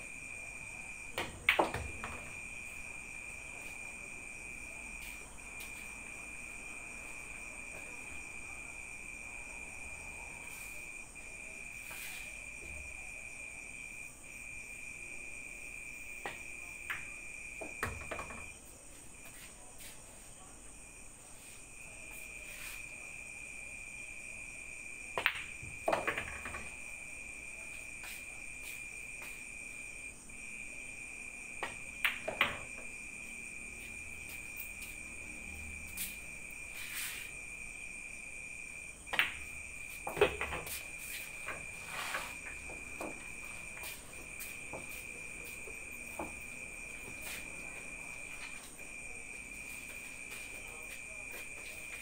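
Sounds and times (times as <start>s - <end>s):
high cricket trill: 1.9s - 52.0s
pool balls clicking: 39.1s - 40.8s.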